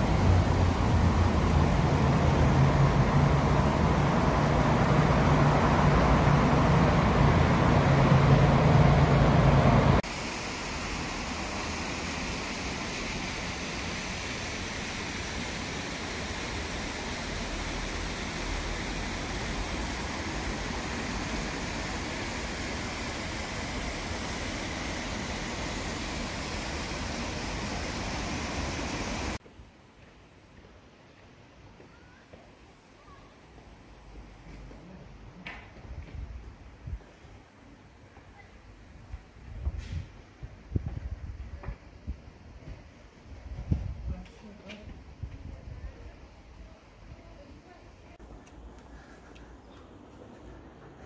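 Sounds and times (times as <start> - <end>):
engine hum with low drone: 0.0 - 10.1
background hiss: 0.0 - 35.8.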